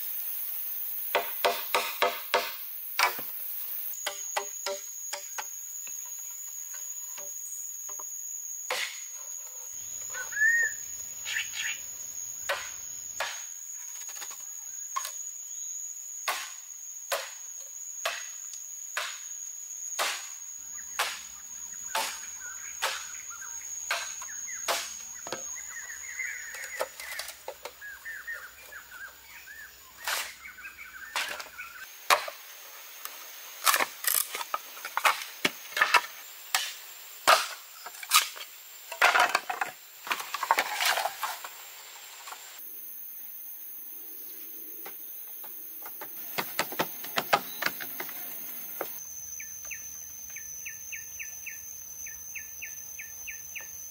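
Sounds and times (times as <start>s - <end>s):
machete chopping bamboo: 1.1s - 3.2s, 12.5s - 13.5s, 16.3s - 17.4s, 18.0s - 19.3s, 20.0s - 20.4s, 21.0s - 21.3s, 21.9s - 23.2s, 23.9s - 25.5s, 33.6s - 38.4s.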